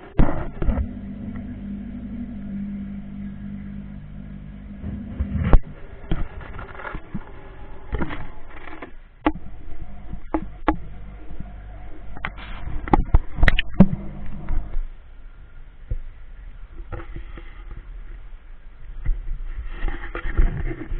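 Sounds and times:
low steady hum: 0.0s - 20.9s
knocks and clicks in aquarium: 10.1s - 10.9s, 12.2s - 14.7s.

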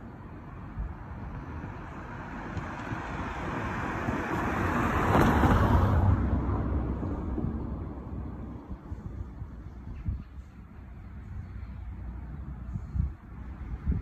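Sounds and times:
car driving past: 2.2s - 8.6s.

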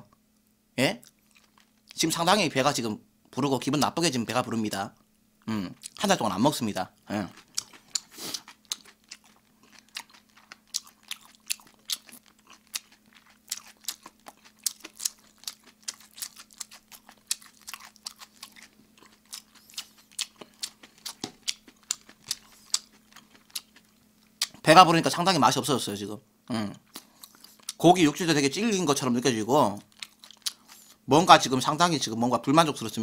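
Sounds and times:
faint steady hum: 0.0s - 33.0s
chewing and crunching food: 1.0s - 2.0s, 5.8s - 6.1s, 7.0s - 24.6s, 26.8s - 27.8s, 29.7s - 31.0s.

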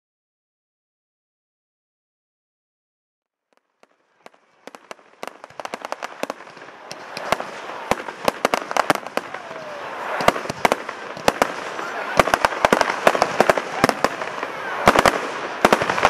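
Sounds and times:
fireworks bangs: 3.4s - 16.0s
fireworks crackling: 3.4s - 16.0s.

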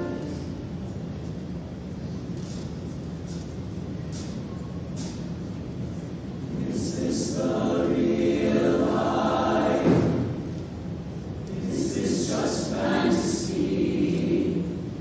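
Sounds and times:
choir singing in harmony: 0.0s - 0.5s, 6.5s - 15.0s.

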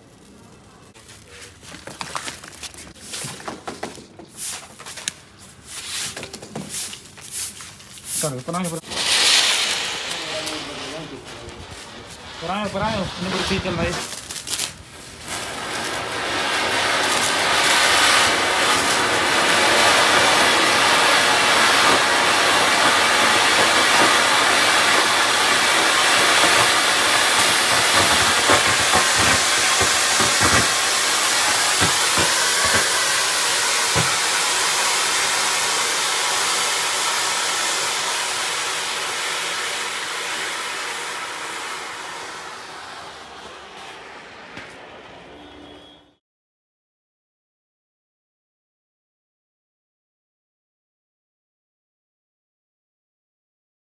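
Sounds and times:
firework fountain hissing: 0.0s - 46.2s
sharp cracks: 8.8s - 12.4s, 13.4s - 34.5s.

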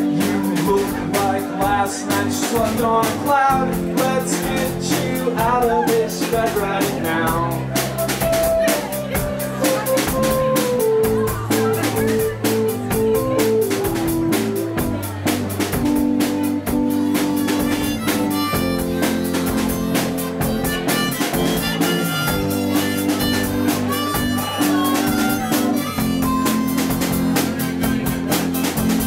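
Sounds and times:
drum kit with cymbals: 0.0s - 29.0s
electric bass: 0.0s - 29.0s
held keyboard chords: 0.0s - 29.0s.

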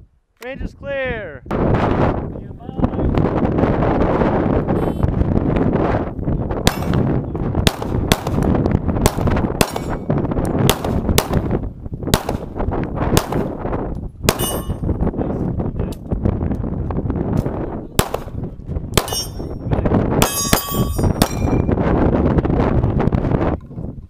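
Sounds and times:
pistol shots: 6.6s - 10.1s, 10.7s - 11.5s, 12.1s - 12.5s, 13.1s - 13.5s, 14.3s - 14.8s, 18.0s - 19.5s, 20.2s - 21.6s
steel targets clanging: 14.3s - 14.9s, 19.0s - 19.6s, 20.2s - 21.6s.

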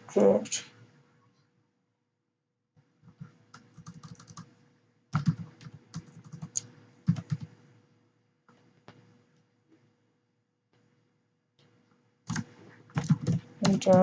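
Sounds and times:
typing on computer keyboard: 3.0s - 4.5s, 5.1s - 7.6s, 12.3s - 14.0s.

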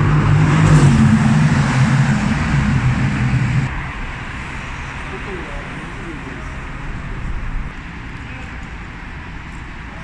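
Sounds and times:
car engine running loudly: 0.0s - 3.8s
street noise: 0.0s - 10.0s.

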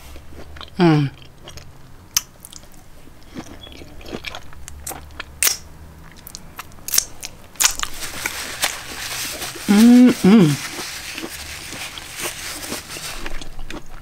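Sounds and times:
crunchy chewing of broccoli: 0.1s - 14.0s.

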